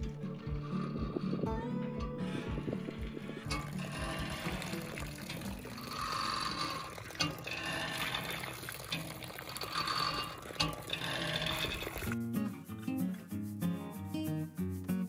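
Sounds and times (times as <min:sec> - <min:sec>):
water gushing from pump outlet: 0:02.4 - 0:12.2.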